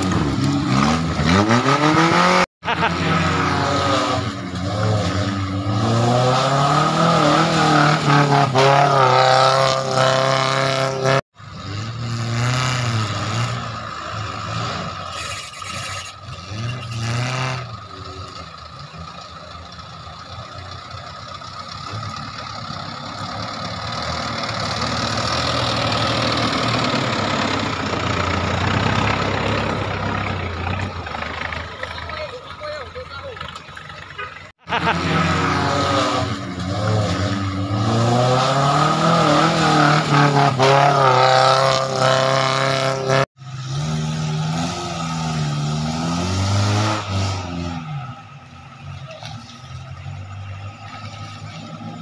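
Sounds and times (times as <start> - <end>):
off-road vehicle engine revving: 0.0 - 52.0.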